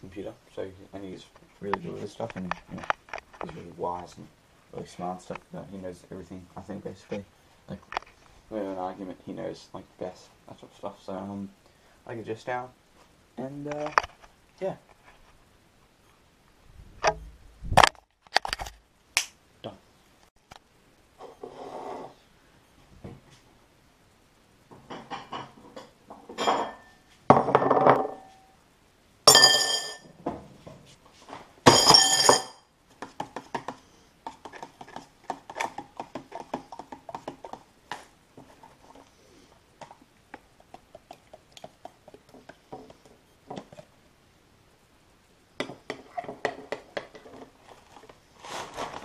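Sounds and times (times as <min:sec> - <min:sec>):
crockery and spoon clinking: 0:26.4 - 0:27.0, 0:29.3 - 0:30.0, 0:31.7 - 0:32.6.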